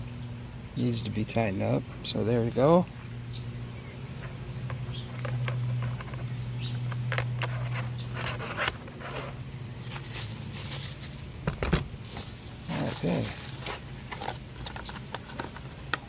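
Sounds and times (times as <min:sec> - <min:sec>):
steady low hum: 0:00.0 - 0:16.0
plastic wrapper crinkling: 0:09.8 - 0:11.2.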